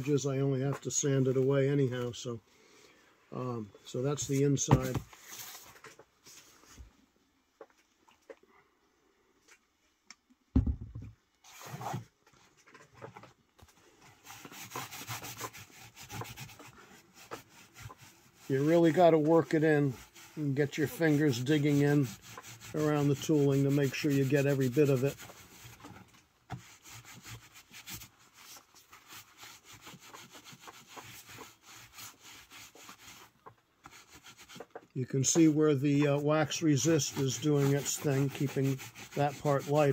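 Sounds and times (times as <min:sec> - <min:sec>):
loud thump: 0:10.5 - 0:11.1
wool dauber rubbing leather: 0:14.1 - 0:39.9
short rasp: 0:14.2 - 0:39.9.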